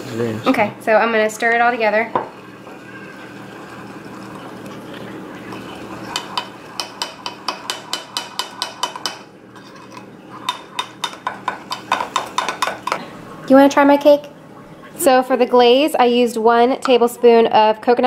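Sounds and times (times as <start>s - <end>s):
spoon stirring batter in mug: 3.7s - 13.0s.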